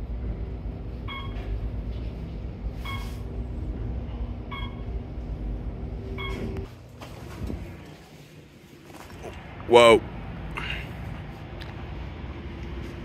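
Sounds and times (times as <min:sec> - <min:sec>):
lift low rumble: 0:00.0 - 0:13.0
lift machinery hum: 0:00.0 - 0:13.0
short electronic beeps: 0:02.8 - 0:03.2, 0:06.2 - 0:06.6.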